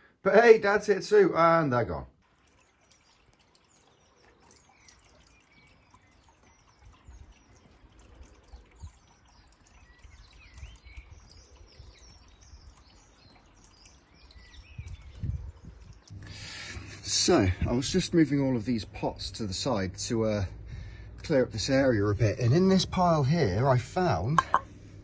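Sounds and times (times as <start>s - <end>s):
small birds chirping: 2.3s - 24.7s
low rumbles: 14.7s - 25.0s.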